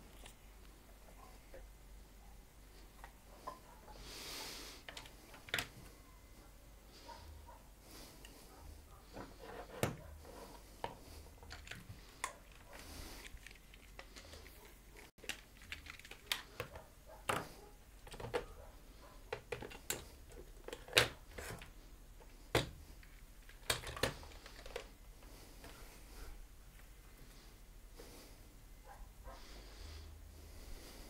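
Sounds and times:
hand tools clicking and tapping: 10.8s - 24.9s.

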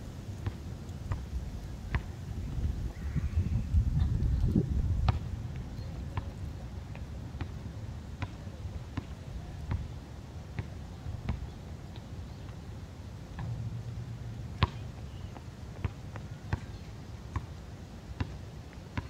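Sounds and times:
basketball bouncing on concrete: 5.0s - 5.2s, 9.7s - 9.9s, 14.6s - 14.8s, 15.8s - 17.5s.

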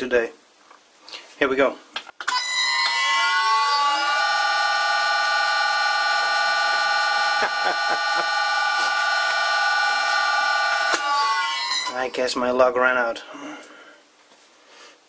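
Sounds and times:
lathe drilling whine: 3.1s - 12.0s.

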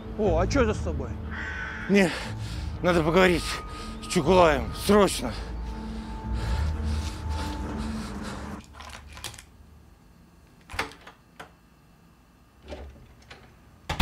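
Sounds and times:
background music: 0.0s - 8.6s.

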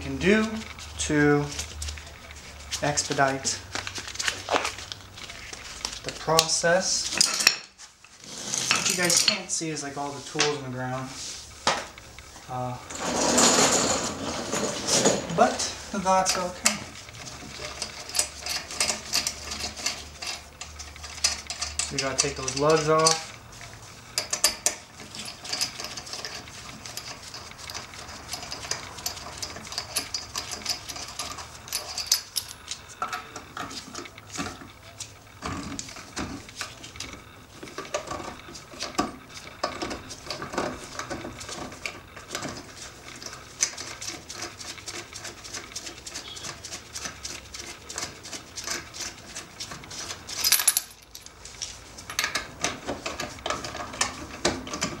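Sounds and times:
socket clinking on nuts: 50.4s - 51.3s.

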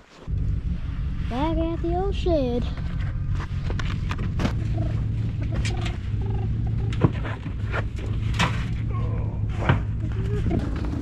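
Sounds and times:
steady low hum: 0.1s - 11.0s.

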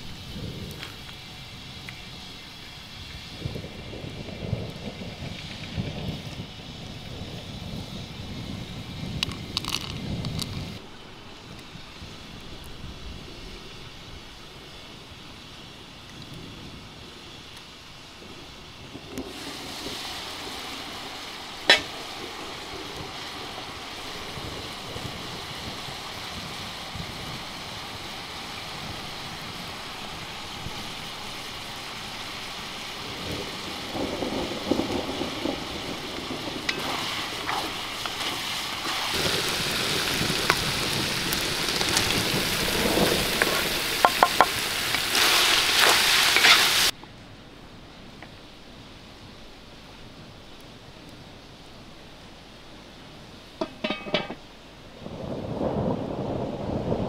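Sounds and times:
food sizzling in a pot: 11.7s - 33.9s, 34.5s - 47.0s, 53.6s - 54.5s.

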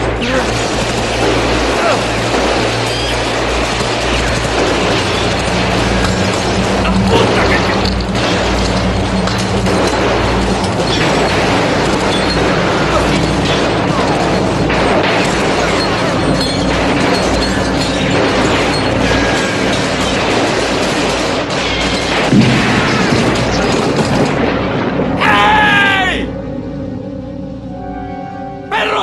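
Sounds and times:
heavy gunfire: 0.0s - 25.9s
booming blasts: 0.0s - 27.2s
dramatic orchestral score: 22.1s - 29.0s.

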